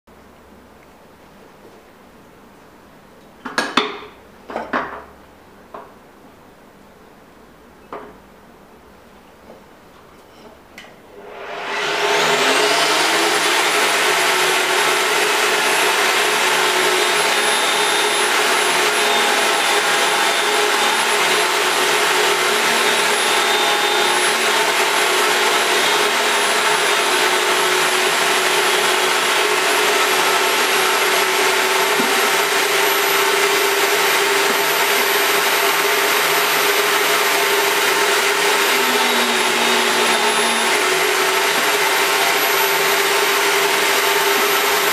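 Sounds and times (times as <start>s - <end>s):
pipe-threading machine motor whining: 11.2s - 44.9s.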